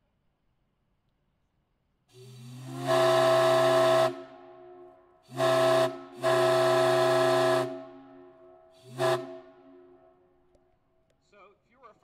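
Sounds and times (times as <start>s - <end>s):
chime steam whistle blasts: 2.2s - 4.4s, 5.3s - 8.0s, 8.8s - 9.9s.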